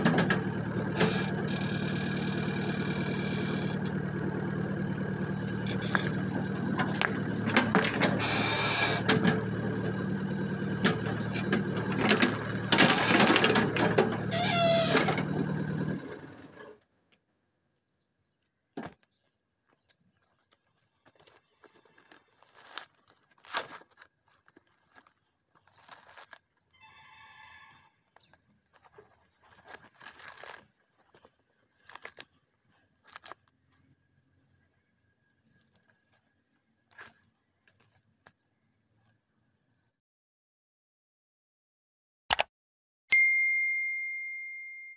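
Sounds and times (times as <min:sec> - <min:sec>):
diesel engine running: 0:00.0 - 0:16.8
coconut cracking and creaking: 0:05.3 - 0:15.6, 0:19.9 - 0:26.8, 0:28.1 - 0:33.9
short squeal: 0:08.1 - 0:09.1, 0:14.2 - 0:15.3.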